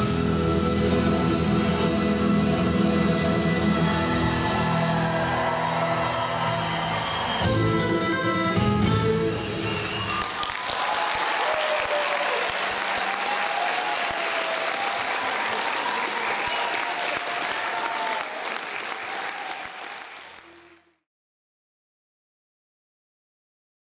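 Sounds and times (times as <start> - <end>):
people cheering: 2.8 - 21.0
audience applauding: 3.4 - 8.4, 9.3 - 21.0
guitar music: 7.4 - 9.5.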